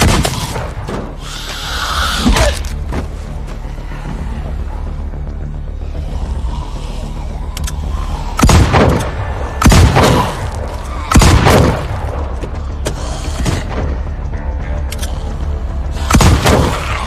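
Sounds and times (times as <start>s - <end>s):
low droning film score: 0.0s - 17.0s
echoing gunshots: 8.4s - 12.0s.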